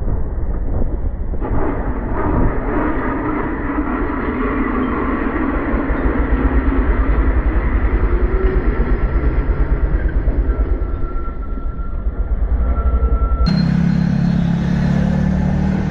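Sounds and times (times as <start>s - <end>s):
rushing wind: 0.0s - 15.9s
road noise: 6.6s - 15.9s
motorcycle engine running: 13.5s - 15.9s.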